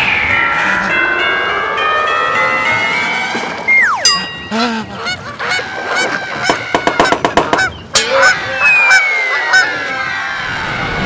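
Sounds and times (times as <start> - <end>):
long falling whistle: 2.4 - 4.3, 8.4 - 11.0
cartoon birds honking like geese: 3.7 - 11.0.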